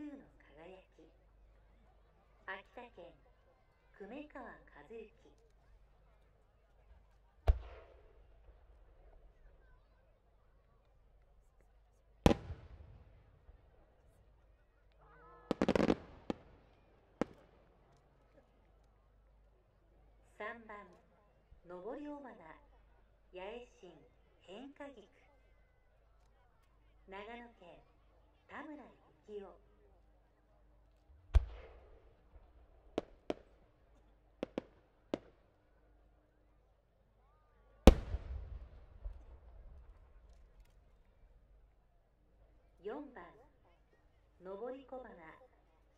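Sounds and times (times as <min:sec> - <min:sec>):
firework shells bursting: 0:15.5 - 0:16.4, 0:37.9 - 0:39.2.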